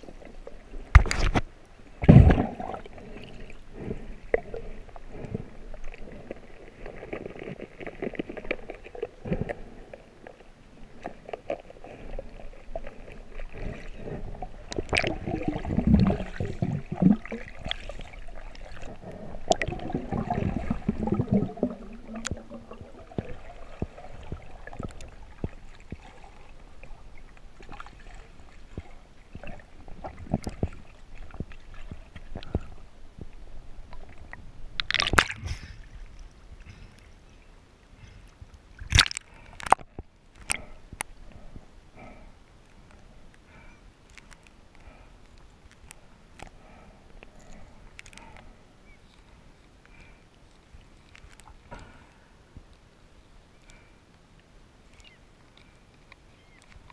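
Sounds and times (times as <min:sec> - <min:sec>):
low gurgling rumbles: 0:00.0 - 0:37.4
underwater clicks and knocks: 0:00.8 - 0:02.8, 0:34.8 - 0:35.6.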